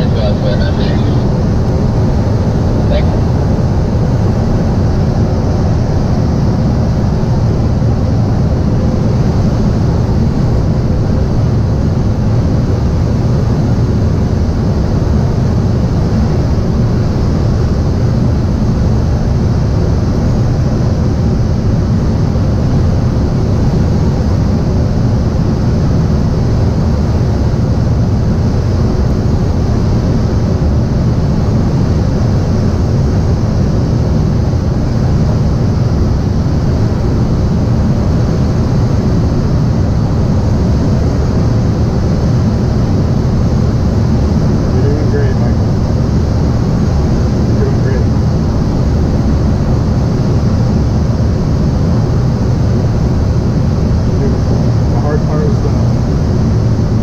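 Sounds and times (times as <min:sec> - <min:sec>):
air rushing over cockpit: 0:00.0 - 0:04.2
faint plane engine droning: 0:00.0 - 0:57.0.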